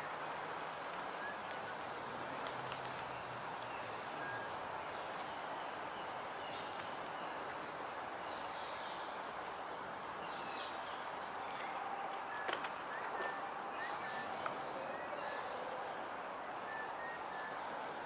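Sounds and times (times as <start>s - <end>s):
outdoor ambience hiss: 0.0s - 18.0s
small birds chirping: 10.1s - 17.6s.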